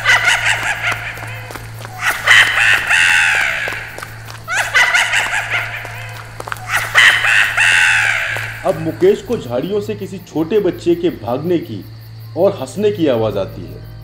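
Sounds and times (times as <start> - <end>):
small child giggling: 4.5 - 7.8.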